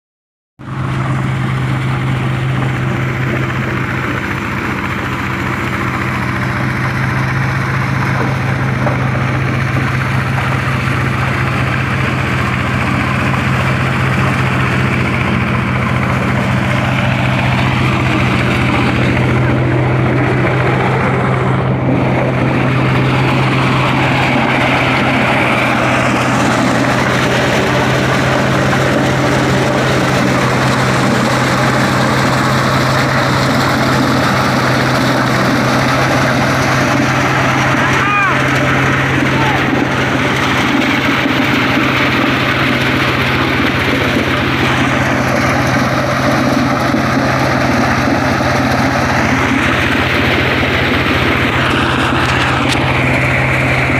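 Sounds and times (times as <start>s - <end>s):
corn sheller machine running: 0.6s - 53.9s.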